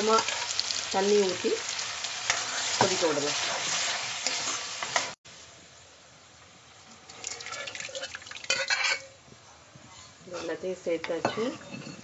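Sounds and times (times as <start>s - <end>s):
spoon stirring and scraping pan: 0.0s - 5.2s, 7.1s - 9.2s.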